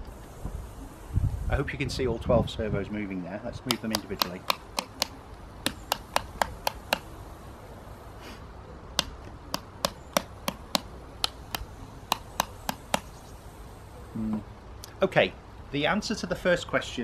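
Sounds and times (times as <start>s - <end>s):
small switches clicking: 3.7s - 7.1s, 9.0s - 13.1s.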